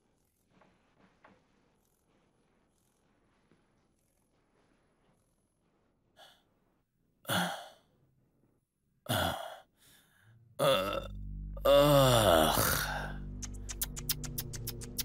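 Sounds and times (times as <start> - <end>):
man breathing heavily: 9.2 - 10.4
low music: 10.4 - 15.0
man groaning: 10.6 - 13.2.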